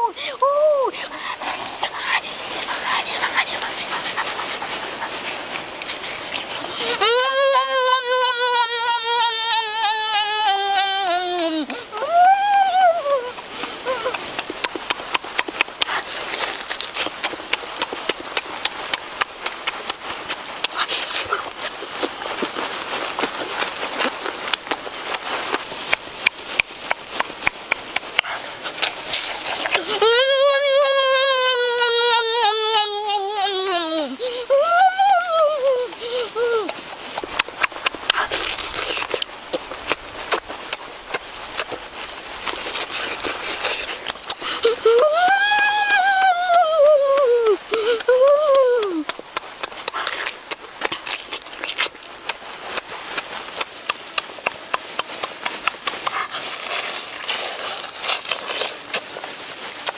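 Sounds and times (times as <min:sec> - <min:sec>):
person chewing and sucking: 0:01.1 - 0:59.9
wet mouth smacks and clicks: 0:10.7 - 0:29.8, 0:36.6 - 0:44.6, 0:48.8 - 0:59.9.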